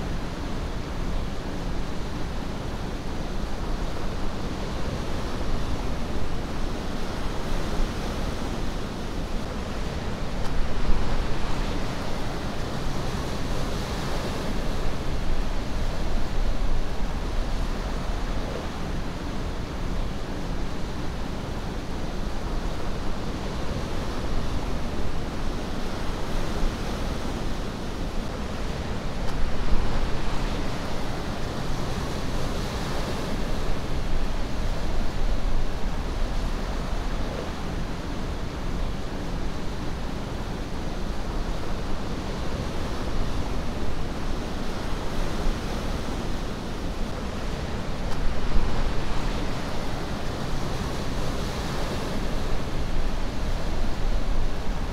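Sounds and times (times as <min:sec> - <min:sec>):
ocean surf washing: 0:00.0 - 0:54.9.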